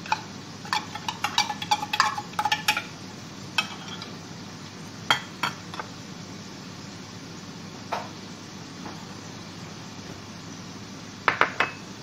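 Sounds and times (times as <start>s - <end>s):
spoon clinking and scraping plate: 0.0s - 2.9s, 3.6s - 4.1s.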